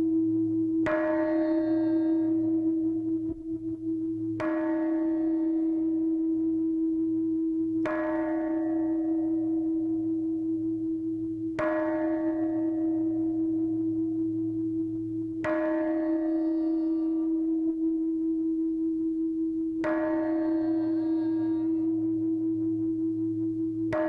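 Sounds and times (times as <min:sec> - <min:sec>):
steady sustained tone: 0:00.0 - 0:24.0.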